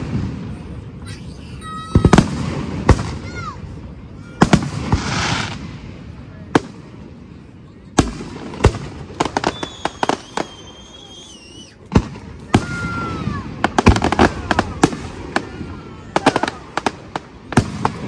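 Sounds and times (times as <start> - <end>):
fireworks booms and crackling: 0.0 - 18.0
high wavering whistle: 9.5 - 11.8.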